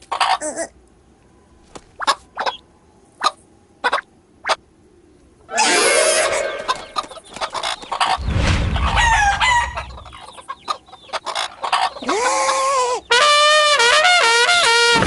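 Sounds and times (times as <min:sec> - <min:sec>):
cartoon chickens squawking: 0:00.0 - 0:00.8, 0:02.0 - 0:02.6, 0:05.5 - 0:08.2, 0:08.8 - 0:13.6
held rising note: 0:05.5 - 0:07.2
low rumble: 0:08.1 - 0:10.4.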